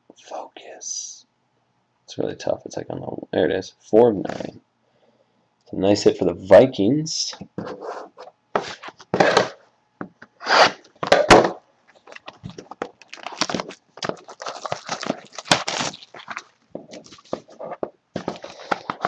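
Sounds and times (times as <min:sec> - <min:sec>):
card pack rustling and scraping: 0:07.6 - 0:09.6, 0:10.4 - 0:11.3, 0:11.9 - 0:19.0.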